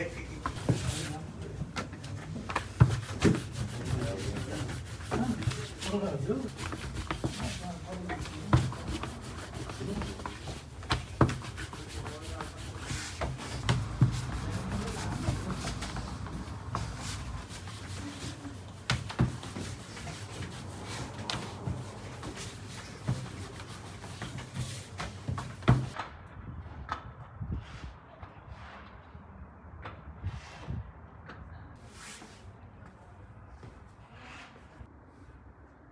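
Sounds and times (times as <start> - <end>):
rolling pin rubbing dough: 2.5 - 26.0.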